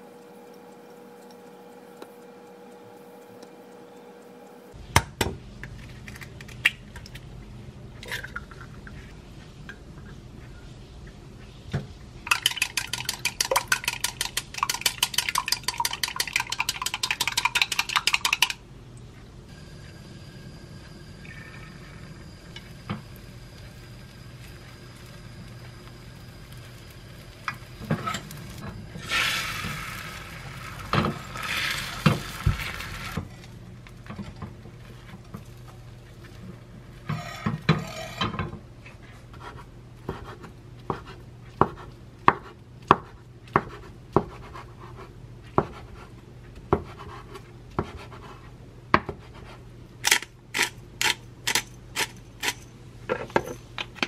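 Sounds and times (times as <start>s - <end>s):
omelette sizzling in a pan: 21.7s - 33.3s
chopsticks scraping a pan: 37.1s - 38.2s.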